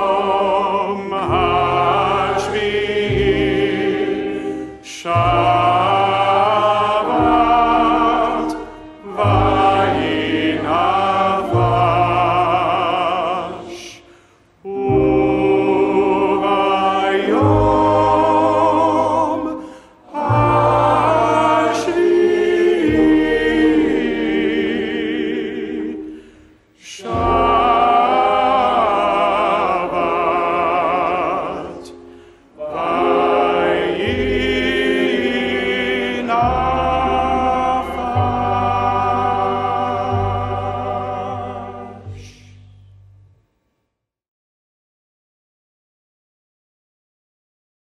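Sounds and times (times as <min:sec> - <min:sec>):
congregation singing: 0:00.0 - 0:42.5
cantor singing: 0:00.0 - 0:42.8
violin: 0:03.2 - 0:12.0
upright bass: 0:35.9 - 0:43.2.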